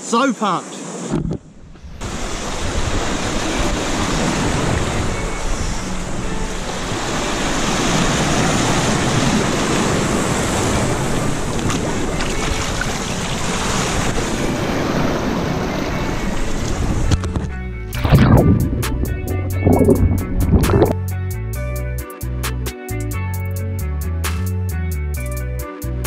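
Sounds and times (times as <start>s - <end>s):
wind buffeting microphone: 1.1s - 21.0s
surf washing over rocks: 1.9s - 17.3s.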